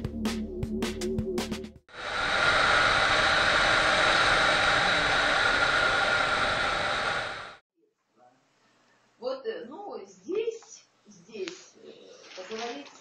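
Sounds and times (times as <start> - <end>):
wind and road noise: 2.0 - 7.6.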